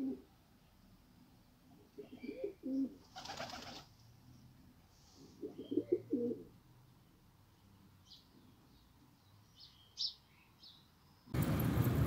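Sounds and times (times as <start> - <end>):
pigeons cooing: 0.0 - 0.3, 1.8 - 3.8, 5.3 - 6.5.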